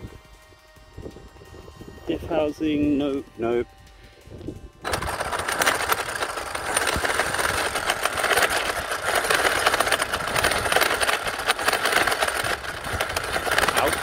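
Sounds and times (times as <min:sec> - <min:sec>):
gears grinding in clicks: 0:04.8 - 0:14.0
toy truck drivetrain spinning: 0:04.8 - 0:14.0.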